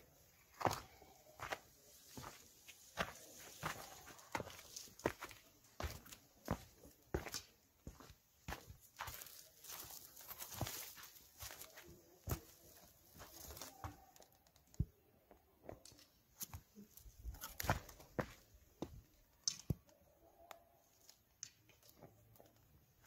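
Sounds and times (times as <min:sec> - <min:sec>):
dry plants crackling: 0:00.3 - 0:14.8
footsteps on sandstone and grit: 0:00.5 - 0:14.1, 0:17.3 - 0:19.0.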